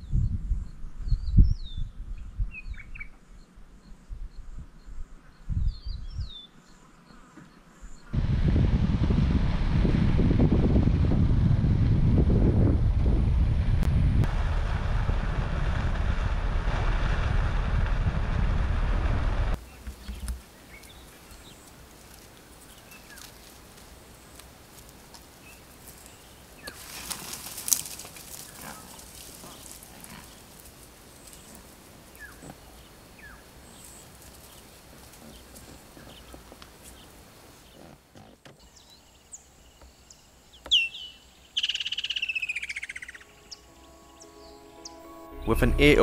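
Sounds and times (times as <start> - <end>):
wind buffeting microphone: 0.0 - 3.0, 8.1 - 21.0
bird chirps: 38.6 - 46.0.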